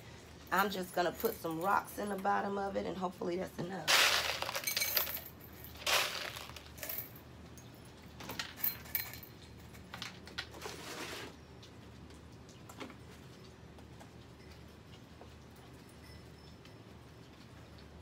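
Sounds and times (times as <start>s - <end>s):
pebbles clinking against glass bowl: 3.9s - 7.2s.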